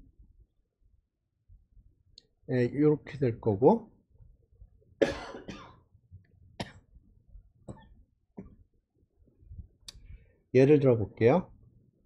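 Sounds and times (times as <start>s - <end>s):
person coughing: 5.0s - 5.8s.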